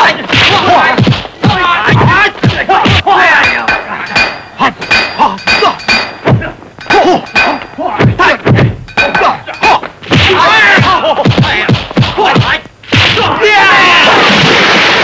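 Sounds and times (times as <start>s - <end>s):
fighters shouting and grunting: 0.0s - 14.1s
punch and block whacks: 11.2s - 13.4s.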